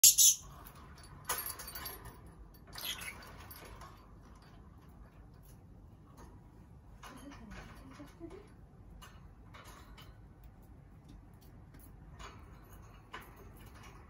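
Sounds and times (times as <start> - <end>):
lovebird chirps: 0.0 - 0.5.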